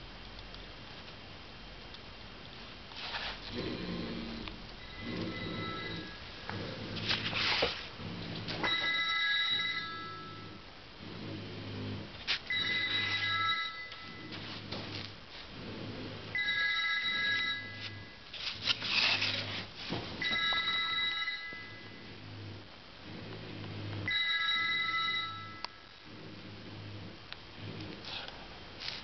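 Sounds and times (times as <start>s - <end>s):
telephone ringing: 4.8s - 6.2s, 8.6s - 10.6s, 12.5s - 14.4s, 16.3s - 18.2s, 20.2s - 22.0s, 24.0s - 25.8s.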